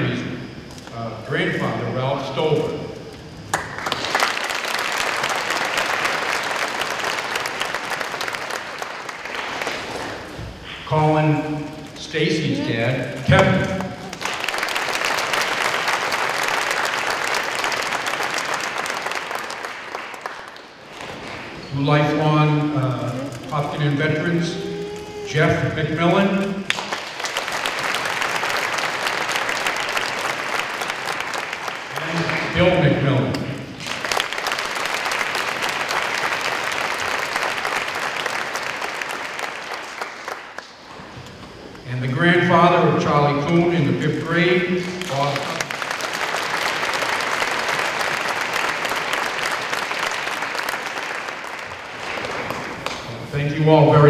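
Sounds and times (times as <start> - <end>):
audience applauding: 3.2 - 41.4, 44.2 - 53.2.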